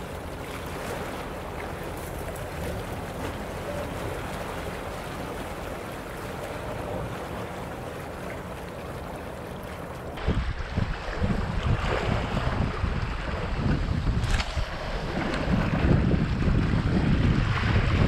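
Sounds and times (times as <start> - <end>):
small waves on rocky shore: 0.0 - 18.0
wind gusts buffeting microphone: 10.0 - 18.0.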